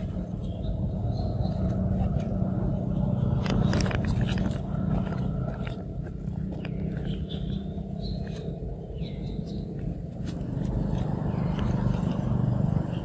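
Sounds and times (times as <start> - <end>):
rustling sapling: 1.4 - 8.9.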